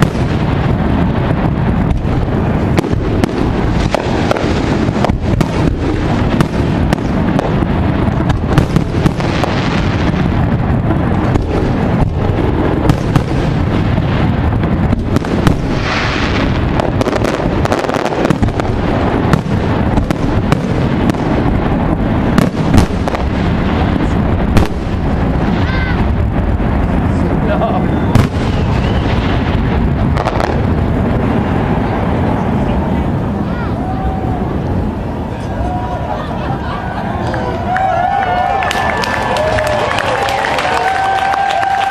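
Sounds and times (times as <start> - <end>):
firework shells bursting: 0.0 - 31.2.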